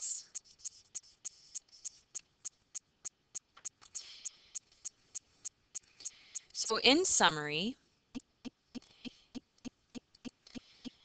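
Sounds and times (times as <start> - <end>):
pen scratching on paper: 0.0 - 2.6.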